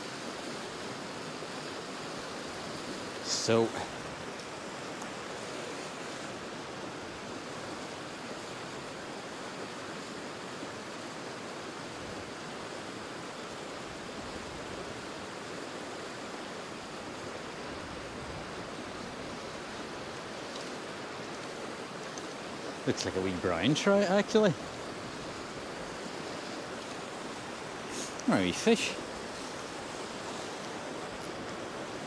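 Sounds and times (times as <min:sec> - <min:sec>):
river water rushing over rapids: 0:00.0 - 0:32.0.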